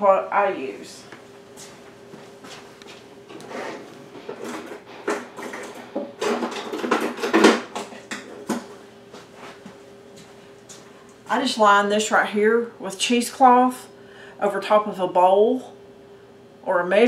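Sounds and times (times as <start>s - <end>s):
utensils and cookware rattling: 4.4s - 7.7s.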